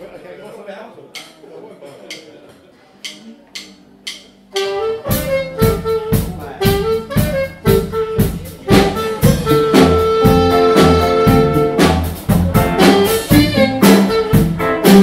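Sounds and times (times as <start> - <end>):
sharp ticks: 3.0 - 4.3
saxophone held notes: 4.5 - 15.0
guitars strumming: 4.9 - 15.0.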